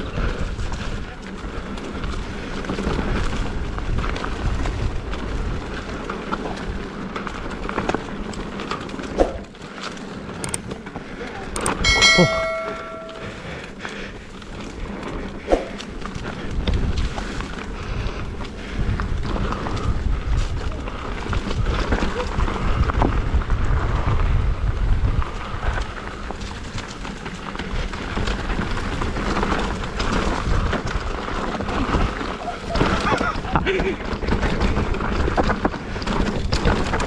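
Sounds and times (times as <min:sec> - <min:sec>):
bike tyres rumbling on dirt: 0:00.0 - 0:37.0
sharp metallic clang: 0:11.8 - 0:13.3
bike knocks and rattles: 0:26.2 - 0:37.0.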